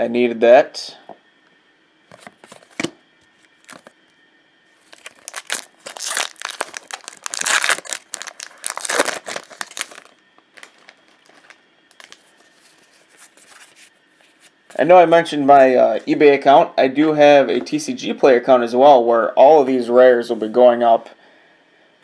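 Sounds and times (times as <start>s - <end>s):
cards rustling: 3.6s - 3.9s, 4.8s - 14.5s
foil wrapper crinkling: 3.6s - 3.9s, 4.8s - 14.6s.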